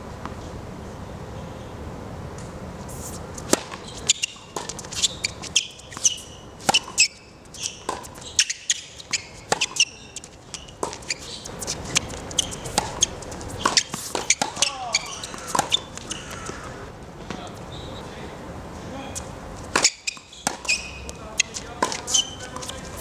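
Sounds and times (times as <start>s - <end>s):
shoe squeaks: 2.9s - 16.8s, 17.6s - 18.2s, 19.1s - 23.0s
tennis ball hit off strings: 3.4s - 4.9s, 7.8s - 11.1s, 11.8s - 17.4s, 19.7s - 22.8s
tennis ball bouncing on court: 3.4s - 17.6s, 19.6s - 23.0s.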